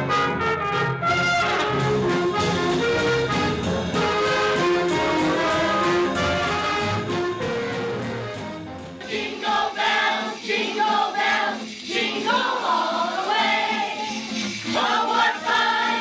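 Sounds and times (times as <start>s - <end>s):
jazz band music: 0.0s - 10.1s
children singing a carol: 9.0s - 16.0s
jingle bells shaken: 9.0s - 16.0s.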